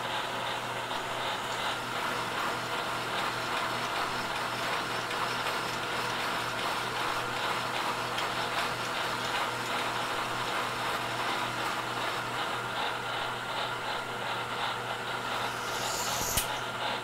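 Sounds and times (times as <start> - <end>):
motor hum: 0.0 - 16.7
milling machine cutting metal: 15.2 - 16.6.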